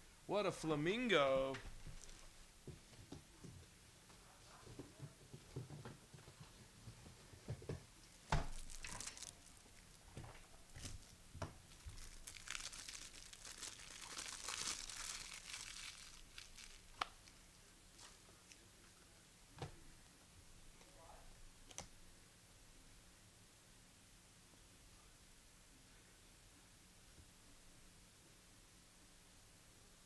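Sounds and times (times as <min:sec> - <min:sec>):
foil wrapper crinkling and tearing: 0:08.4 - 0:10.0, 0:10.7 - 0:17.4.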